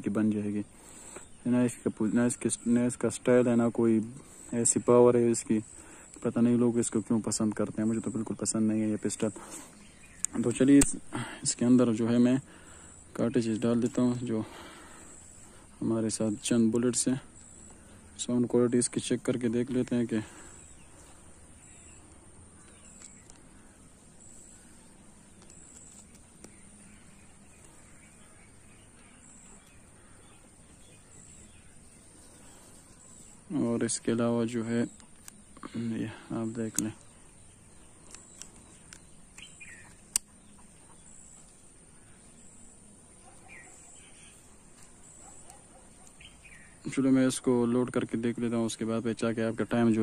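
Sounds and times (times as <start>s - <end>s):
birds chirping: 0.0s - 50.0s
faint clicks of revolver handling: 22.1s - 23.7s, 25.3s - 26.7s, 34.9s - 35.6s, 36.6s - 37.1s, 37.8s - 40.5s
revolver metallic clicks: 36.6s - 37.1s, 38.0s - 40.5s.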